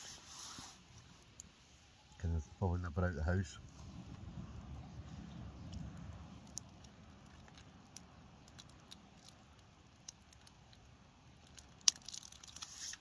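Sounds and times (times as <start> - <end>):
low rumble: 3.2 - 8.2
campfire crackling and popping: 3.9 - 13.0.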